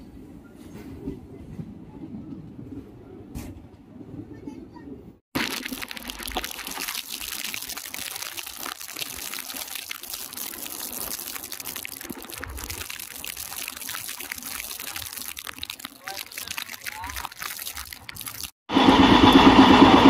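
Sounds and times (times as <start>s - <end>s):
train running noise: 18.7s - 20.0s.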